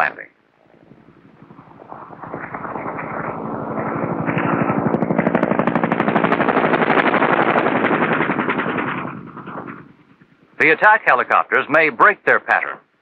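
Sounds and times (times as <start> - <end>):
rapid automatic gunfire: 1.2 - 10.2.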